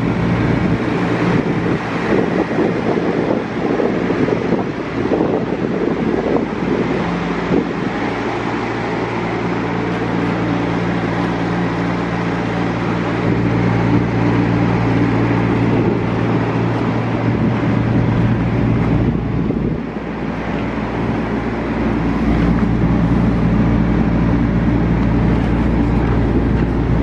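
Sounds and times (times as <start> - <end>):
constant rushing noise: 0.0 - 27.0
engine idling: 0.0 - 27.0.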